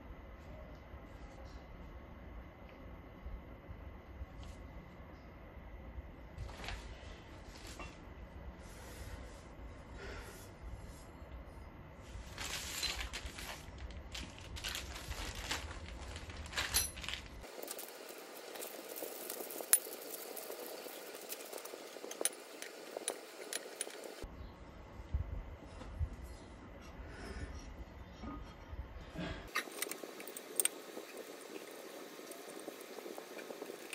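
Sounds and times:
plastic bag crinkling: 0:12.2 - 0:24.2.

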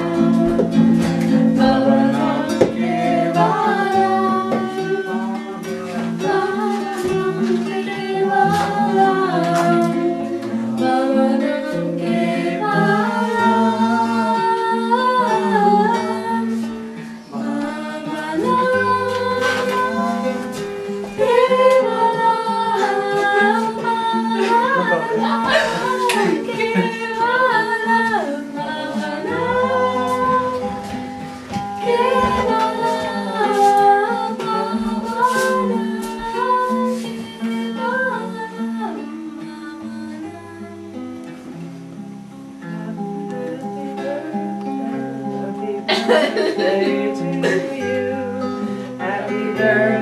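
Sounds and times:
person singing: 0:00.0 - 0:41.5, 0:42.6 - 0:50.0
strummed acoustic guitar: 0:00.0 - 0:50.0.

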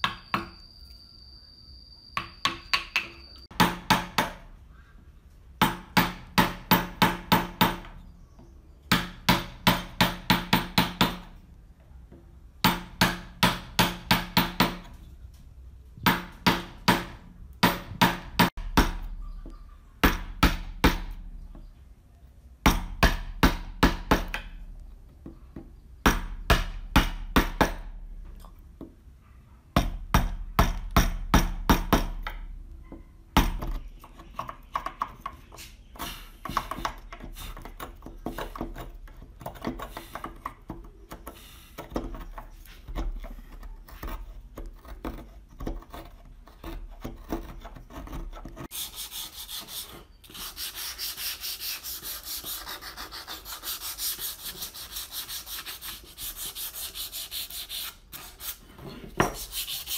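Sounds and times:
wood chisel being struck: 0:00.0 - 0:00.6, 0:02.2 - 0:04.5, 0:05.6 - 0:08.0, 0:08.9 - 0:11.3, 0:12.6 - 0:14.9, 0:16.0 - 0:19.3, 0:20.0 - 0:21.3, 0:22.6 - 0:24.6, 0:26.0 - 0:28.0, 0:29.8 - 0:35.4.

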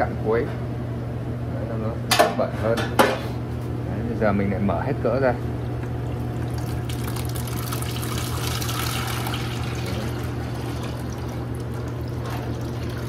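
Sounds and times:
steady low hum: 0:00.0 - 0:13.0
oil pouring into plastic bucket: 0:06.4 - 0:13.0.

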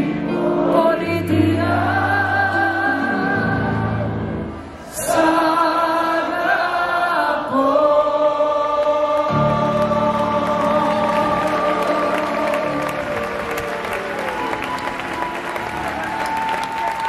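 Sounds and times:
group of voices singing: 0:00.0 - 0:13.4.

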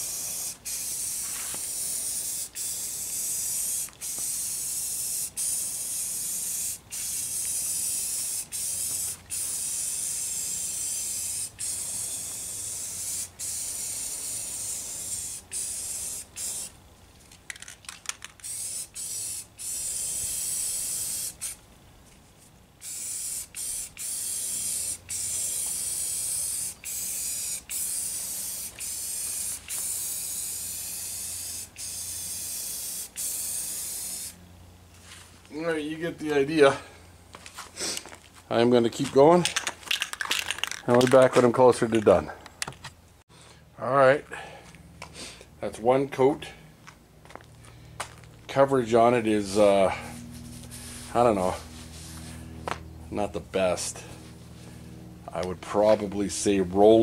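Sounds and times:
spray-paint can hissing: 0:00.0 - 0:16.8, 0:17.6 - 0:21.6, 0:22.8 - 0:34.4.

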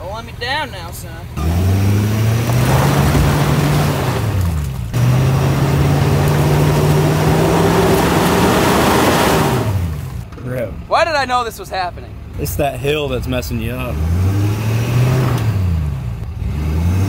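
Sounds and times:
truck engine revving hard: 0:01.4 - 0:10.2, 0:13.6 - 0:17.0
wheels spinning in mud: 0:02.1 - 0:10.2.

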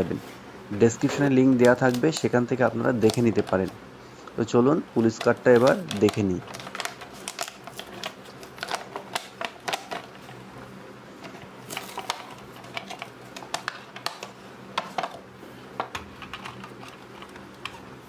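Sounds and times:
plastic packaging crackling: 0:01.0 - 0:03.7, 0:05.0 - 0:10.3, 0:11.3 - 0:14.3.

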